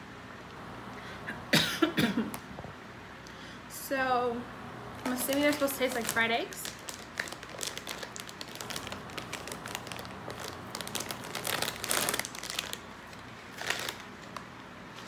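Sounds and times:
plastic chip bag crinkling: 5.0s - 15.0s.

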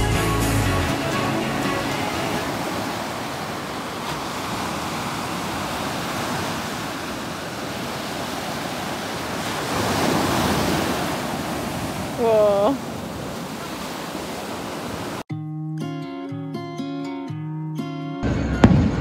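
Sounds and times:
waves breaking on a beach: 0.9s - 15.3s.

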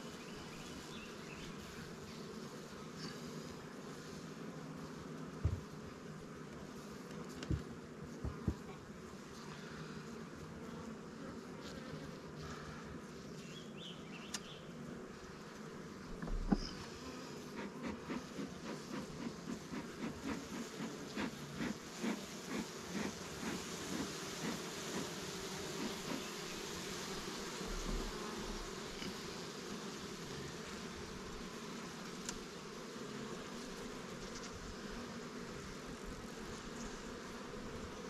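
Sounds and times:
bees buzzing: 0.0s - 38.0s
bellows puffing: 16.5s - 26.3s.

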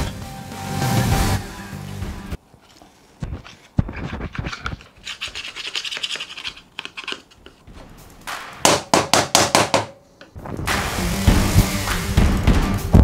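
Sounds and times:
rag scrubbing grime: 4.0s - 7.4s.

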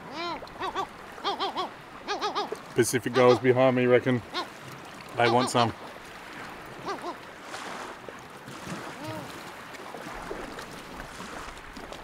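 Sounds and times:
gull call: 0.0s - 3.6s, 4.2s - 4.5s, 5.2s - 5.7s, 6.8s - 7.2s
waves washing on rocky shore: 5.1s - 12.0s.

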